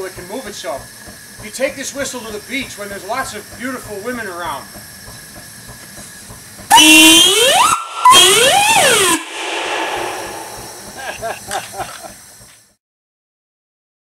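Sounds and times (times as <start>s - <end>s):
steam hissing: 0.5s - 12.4s
steam whistle blasts: 6.7s - 11.4s.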